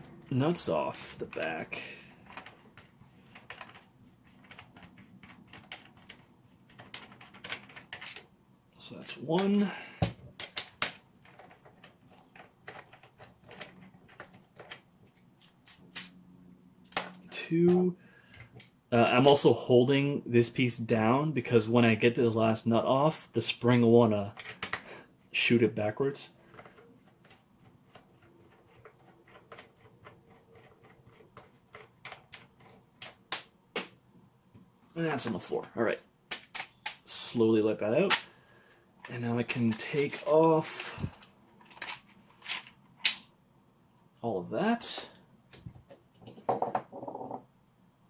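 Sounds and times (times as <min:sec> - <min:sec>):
plastic parts being handled: 0:00.0 - 0:08.4, 0:09.0 - 0:16.2, 0:16.8 - 0:19.4, 0:24.2 - 0:37.2, 0:37.8 - 0:43.4.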